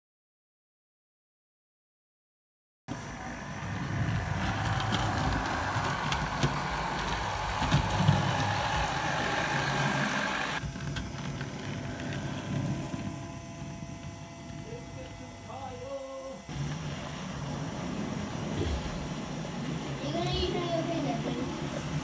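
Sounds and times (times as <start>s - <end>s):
model trains rumbling on track: 2.9s - 13.3s.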